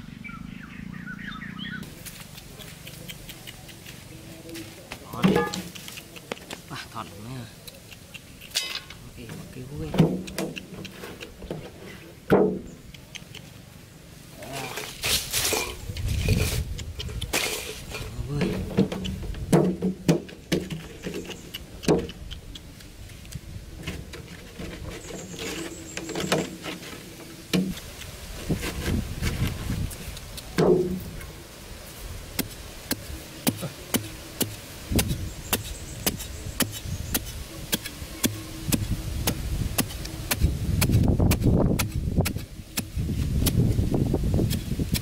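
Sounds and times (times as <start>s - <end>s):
loose earth scattering: 14.4s - 21.0s
metal blade chopping sandy soil: 17.3s - 20.8s, 32.4s - 45.0s.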